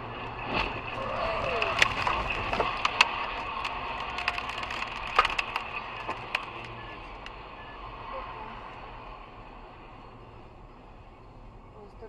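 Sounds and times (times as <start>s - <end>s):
road noise inside car: 0.0s - 12.0s
debris clicking and cracking on car: 0.3s - 7.4s.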